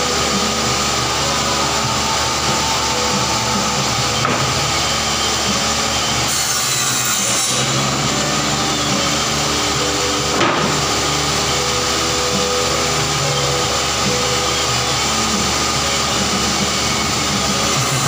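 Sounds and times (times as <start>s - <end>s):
table saw cutting plywood: 0.0s - 18.0s.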